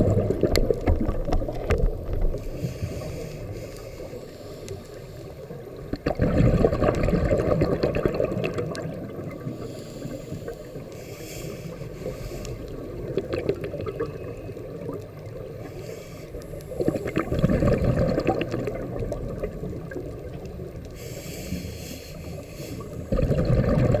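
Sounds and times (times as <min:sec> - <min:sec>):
inhalation hiss: 0:02.3 - 0:05.4, 0:09.5 - 0:12.8, 0:15.6 - 0:17.2, 0:20.9 - 0:23.1.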